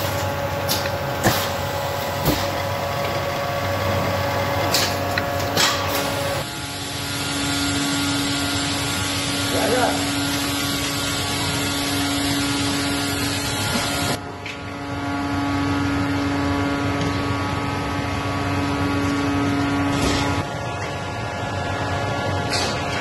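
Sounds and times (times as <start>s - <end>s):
machine drone: 0.0s - 23.0s.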